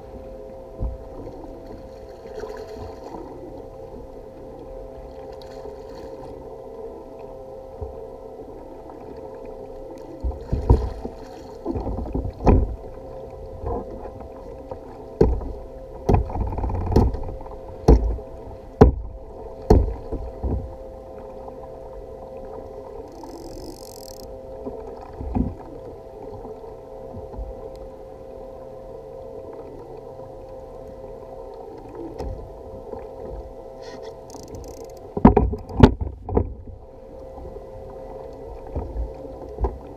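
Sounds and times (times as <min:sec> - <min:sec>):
knocks and thumps on kayak: 0:10.3 - 0:11.1, 0:11.7 - 0:12.8, 0:15.2 - 0:18.2, 0:18.8 - 0:20.7, 0:34.4 - 0:36.6.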